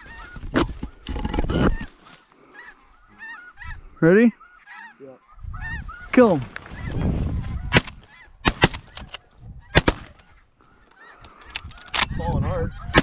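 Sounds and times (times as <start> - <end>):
geese honking: 0.0 - 13.0
shotgun blasts: 7.7 - 9.0, 9.7 - 10.2.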